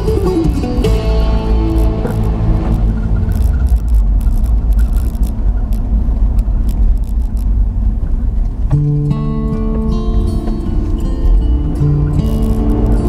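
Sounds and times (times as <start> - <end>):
guitar music: 0.0 - 4.8, 8.7 - 13.0
road and wind noise: 0.0 - 13.0.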